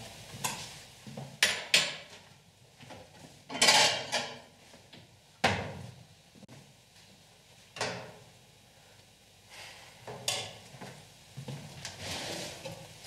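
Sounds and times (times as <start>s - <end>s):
dishes and pots clattering: 1.4s - 2.1s, 3.5s - 4.5s, 10.1s - 10.6s.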